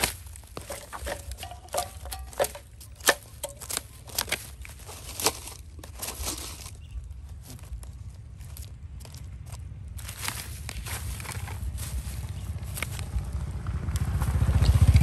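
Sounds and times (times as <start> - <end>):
sharp clicks and knocks: 0.0 - 5.6
plastic bags crinkling: 0.0 - 7.0
stick raking through trash: 0.0 - 7.0, 10.0 - 13.2.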